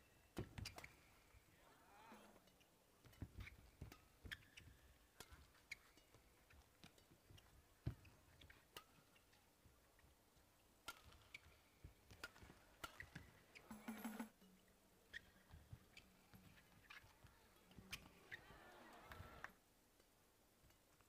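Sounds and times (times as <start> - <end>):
rackets striking shuttlecock: 3.0 - 8.1, 10.8 - 14.3
shoe squeaks: 4.2 - 4.8.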